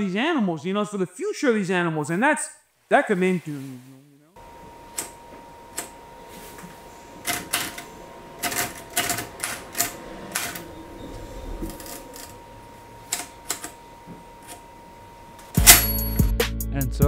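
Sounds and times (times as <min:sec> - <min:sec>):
typewriter keys clacking: 0:07.2 - 0:10.6.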